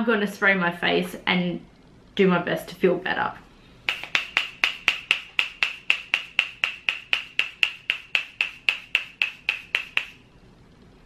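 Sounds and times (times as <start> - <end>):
spray bottle spritzing mist: 3.9 - 10.2.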